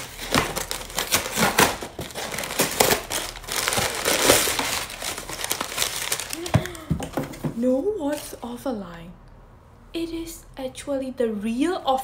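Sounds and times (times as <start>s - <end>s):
cardboard box tearing open: 0.0s - 6.8s
packing paper crumpling: 0.0s - 7.2s.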